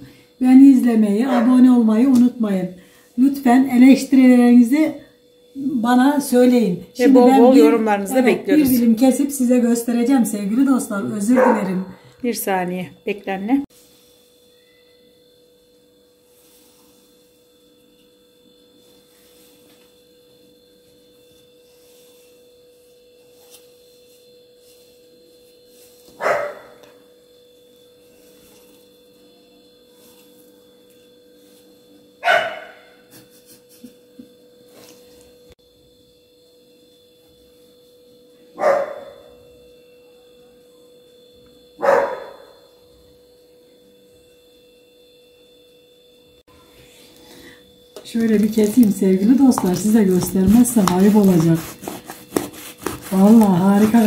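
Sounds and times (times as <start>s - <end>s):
faint hum: 0.0s - 54.0s
dog barking: 1.3s - 1.6s, 11.3s - 11.9s, 26.2s - 26.9s, 32.2s - 33.0s, 38.6s - 39.3s, 41.8s - 42.6s.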